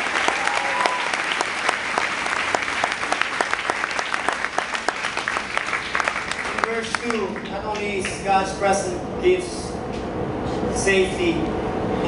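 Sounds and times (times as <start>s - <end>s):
crowd applauding: 0.0s - 8.2s.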